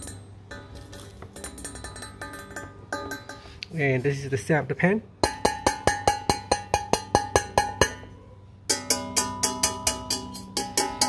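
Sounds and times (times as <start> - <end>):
finger tapping frying pan: 5.2 - 8.0.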